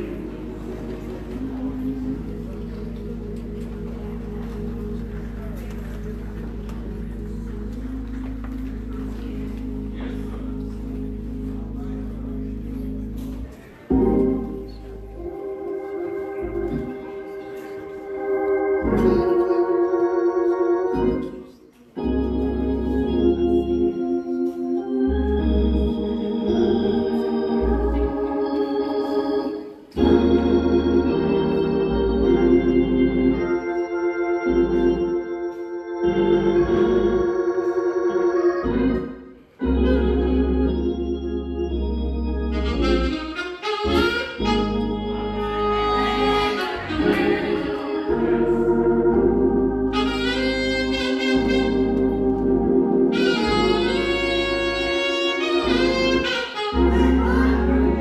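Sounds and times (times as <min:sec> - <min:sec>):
organ playing chords: 0:00.0 - 0:58.0
saxophone melody: 0:22.0 - 0:58.0.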